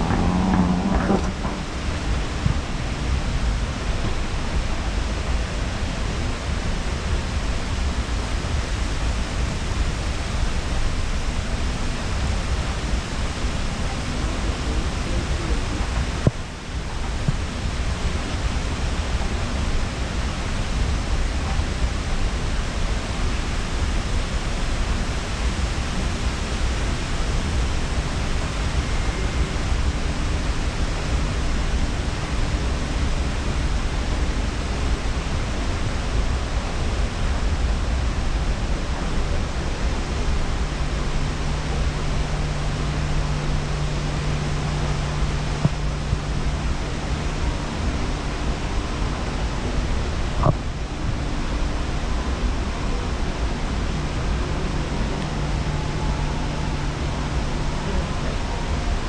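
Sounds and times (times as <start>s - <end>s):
escalator rushing and rumbling: 0.0s - 8.6s.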